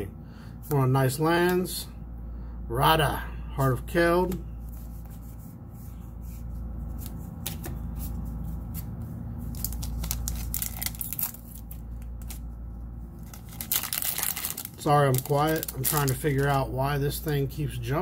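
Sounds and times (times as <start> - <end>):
steady low hum: 0.0 - 18.0
foil wrapper crinkling and tearing: 9.5 - 12.5, 13.2 - 17.3.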